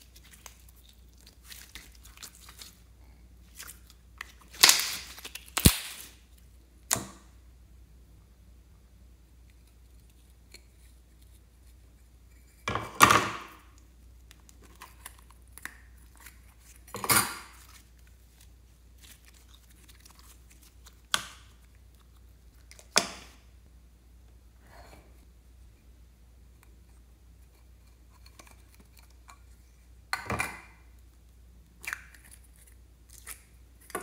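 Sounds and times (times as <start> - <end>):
sticky slime sounds: 0.0 - 7.2, 13.6 - 23.4.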